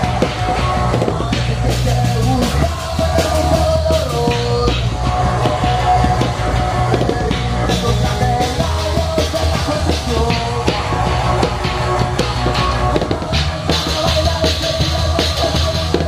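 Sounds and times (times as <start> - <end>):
live rock band playing: 0.0 - 16.0.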